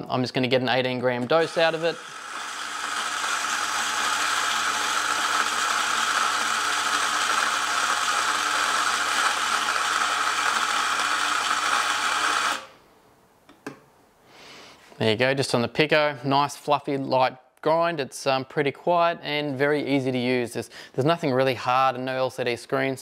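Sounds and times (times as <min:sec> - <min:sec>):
coffee grinder grinding: 0:01.2 - 0:12.8.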